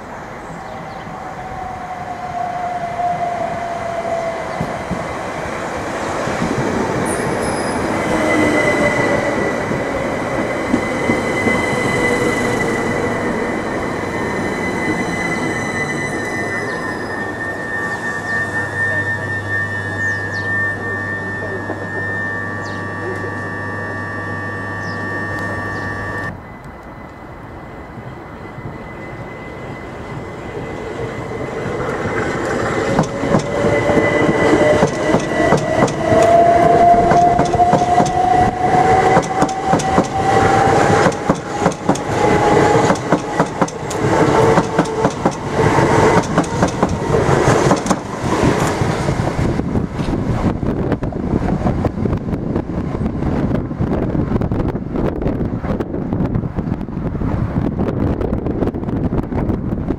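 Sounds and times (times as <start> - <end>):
standing train hum: 0.0 - 59.9
electric traction motor whine: 4.3 - 53.2
train wheels clattering over rail joints: 32.2 - 36.4, 37.1 - 38.2, 39.0 - 40.3, 40.9 - 49.0.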